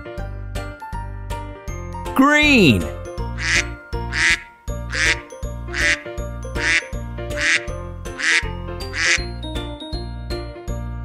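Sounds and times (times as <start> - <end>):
children's music with bass: 1.7 - 11.0
duck quack sound effect: 3.4 - 6.0, 6.6 - 6.8, 7.4 - 9.2.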